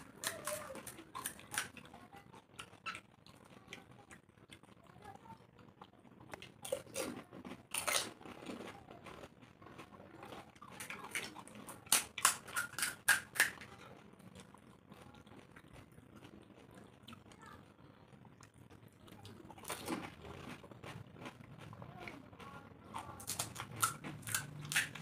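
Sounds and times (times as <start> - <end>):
crisp shells crunching: 10.7 - 13.7.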